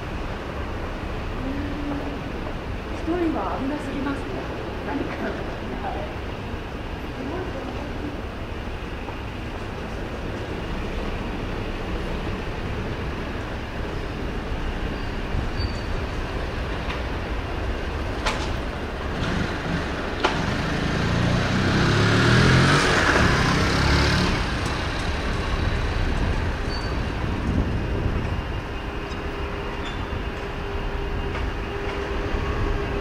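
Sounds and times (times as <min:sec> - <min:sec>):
city street noise: 0:00.0 - 0:33.0
vehicle passing with tyre hiss: 0:19.1 - 0:26.1.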